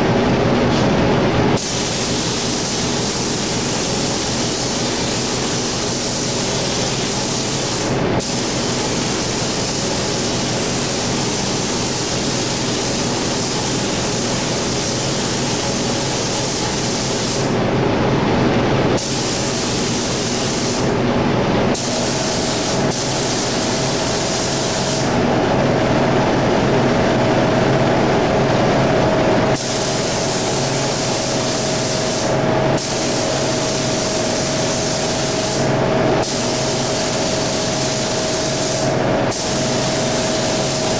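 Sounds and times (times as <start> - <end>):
steady machine hum: 0.0 - 40.9
spray gun hissing: 1.6 - 17.6, 19.0 - 21.0, 21.7 - 25.2, 29.6 - 40.9.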